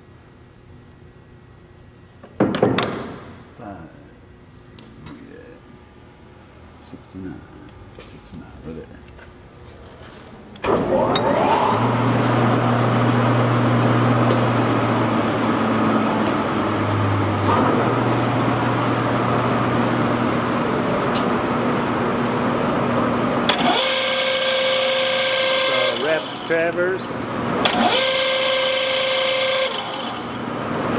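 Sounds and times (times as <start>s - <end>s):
high machine whine: 10.6s - 30.9s
lathe motor humming: 21.7s - 30.9s.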